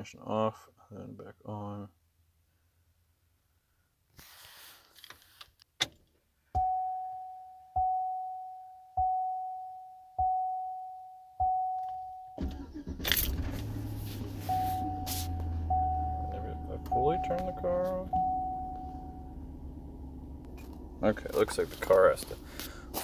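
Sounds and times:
dashboard warning chime dings: 6.6s - 12.4s, 14.2s - 19.4s
ignition click: 11.8s - 19.0s
engine cranking and starting: 12.4s - 14.6s.

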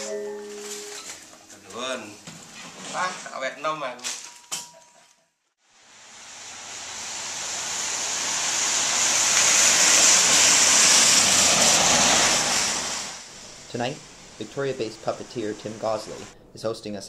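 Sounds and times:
passing vehicle rushing: 9.6s - 13.2s.

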